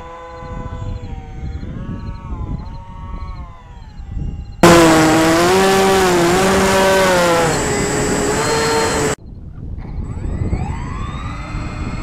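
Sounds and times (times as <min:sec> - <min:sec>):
model plane motor whining: 0:04.6 - 0:09.2.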